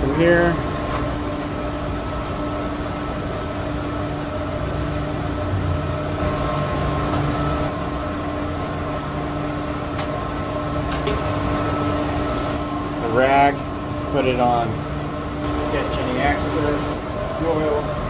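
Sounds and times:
machinery drone: 0.0 - 18.0
faint high whine: 3.9 - 18.0.

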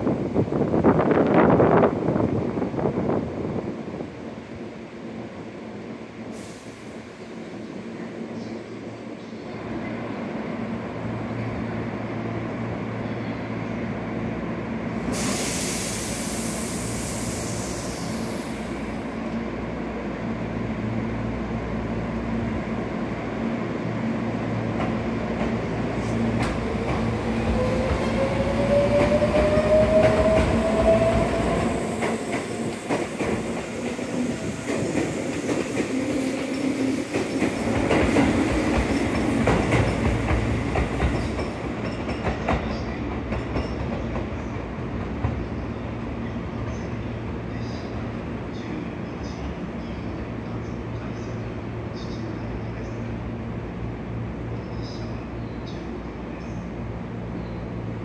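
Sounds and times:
air hiss: 15.0 - 19.1.

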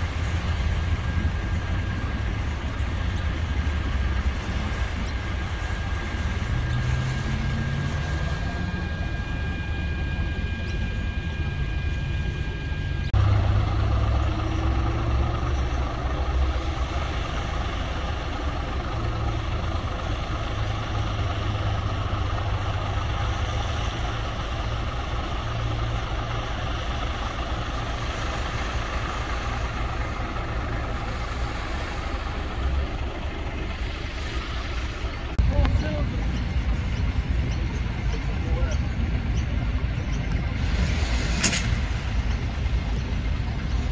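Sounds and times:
engine rising in pitch: 0.0 - 38.5
fire truck diesel engine idling: 0.0 - 43.9.

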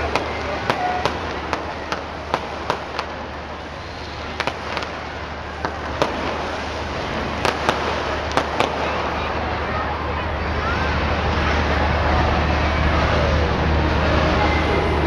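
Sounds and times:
fireworks cracking and popping: 0.0 - 9.9
crowd hubbub: 0.0 - 15.0.

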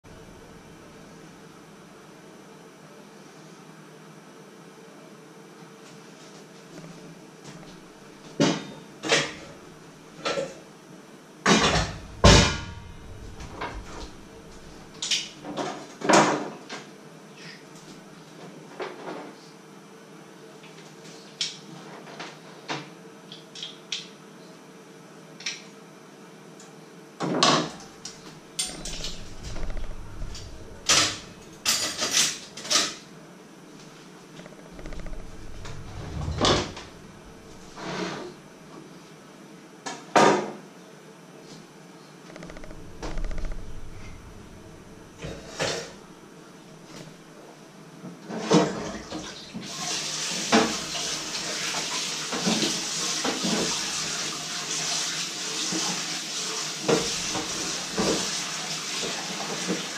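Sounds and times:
low thuds: 11.9 - 15.0, 27.8 - 31.6, 34.5 - 37.8, 42.3 - 46.1.

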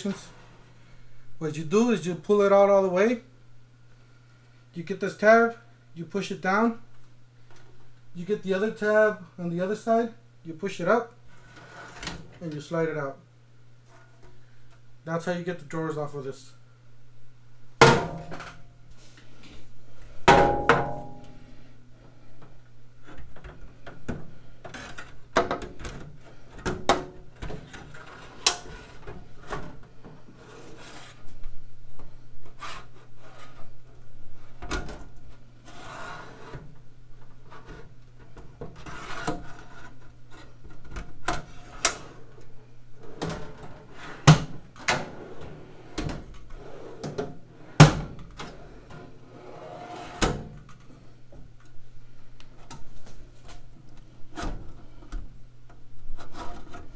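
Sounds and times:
low hum: 19.6 - 23.1
metal drawers sliding: 43.0 - 50.6.

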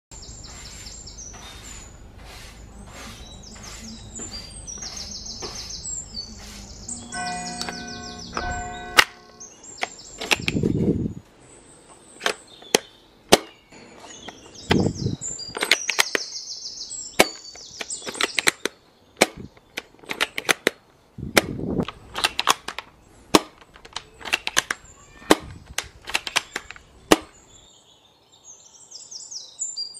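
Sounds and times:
birds chirping: 0.1 - 29.9
toy rifle plastic clacks: 9.8 - 10.6, 15.5 - 16.3, 17.2 - 20.8, 21.4 - 27.3
bolt clacks: 17.2 - 20.8, 21.4 - 27.3.

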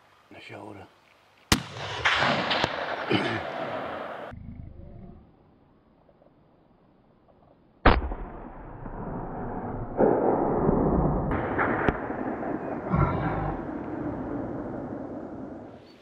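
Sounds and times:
rifle shot: 1.5 - 4.3, 7.8 - 15.8
rough continuing noise: 8.9 - 15.8.

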